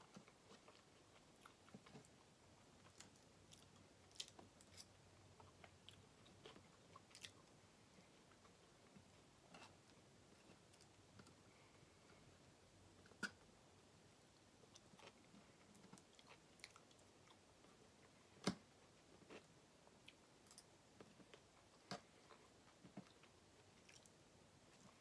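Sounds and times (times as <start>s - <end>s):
person chewing: 0.1s - 7.5s.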